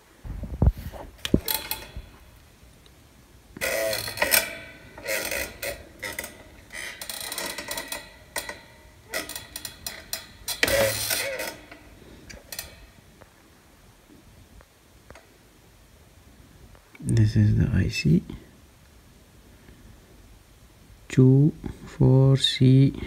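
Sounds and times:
handling noise clicking and scraping: 0:00.6 - 0:02.4, 0:03.6 - 0:13.3.

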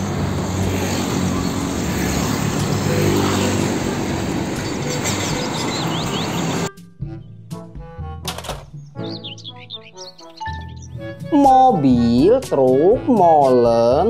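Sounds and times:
truck diesel engine passing: 0:00.0 - 0:06.7
tyre noise from passing vehicles: 0:00.0 - 0:06.7.

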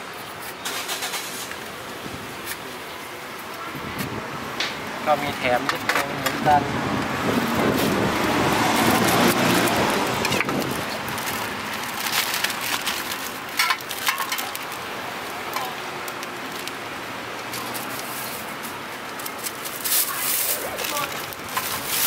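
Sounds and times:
plastic bag rustling: 0:07.2 - 0:22.0.

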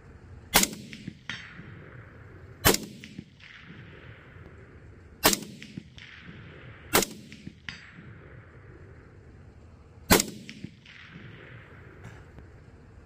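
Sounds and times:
rifle shots: 0:00.5 - 0:09.0, 0:10.1 - 0:12.5
distant clang of steel target: 0:05.3 - 0:08.2.

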